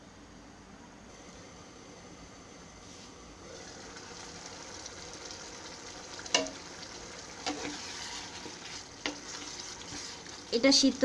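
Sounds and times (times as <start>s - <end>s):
curry simmering and bubbling: 3.4s - 11.0s
sharp knocks against pan: 6.3s - 6.6s
wooden spatula stirring: 6.3s - 10.9s.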